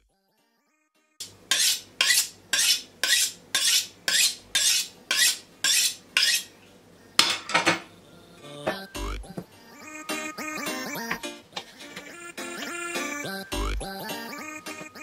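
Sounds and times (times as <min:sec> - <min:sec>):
knife scraping on honing steel: 0:01.5 - 0:06.5.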